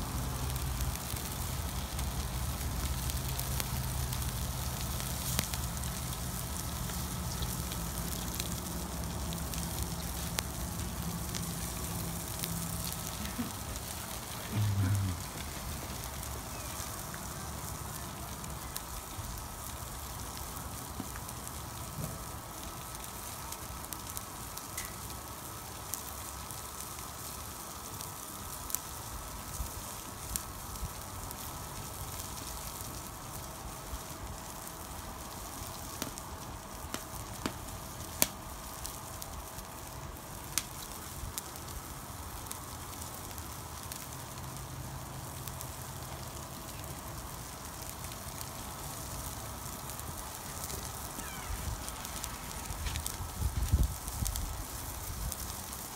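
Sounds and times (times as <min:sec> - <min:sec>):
chicken sizzling on grill: 0:00.0 - 0:55.9
fire popping and crackling: 0:00.0 - 0:55.9.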